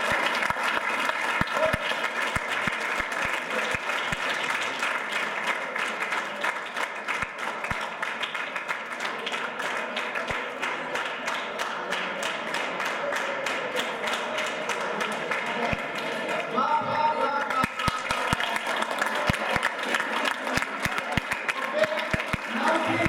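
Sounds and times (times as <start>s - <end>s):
children applauding: 0.0s - 23.0s.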